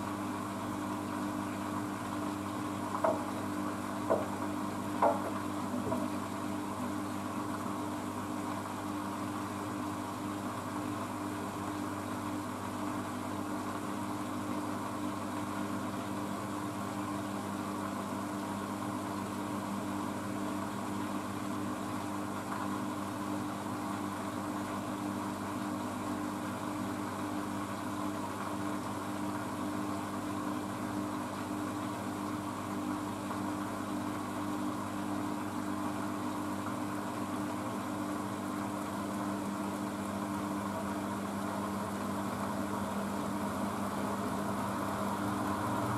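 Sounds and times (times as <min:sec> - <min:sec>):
washing machine spinning: 0:00.0 - 0:45.9.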